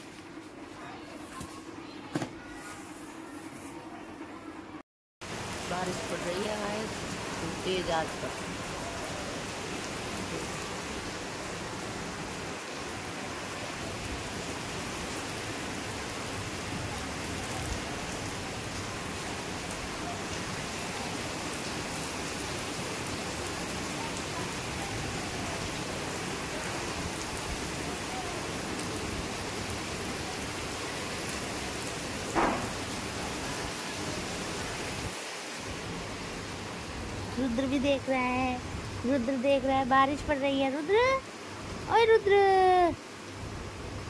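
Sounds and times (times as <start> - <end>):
heavy rain: 5.2 - 44.0.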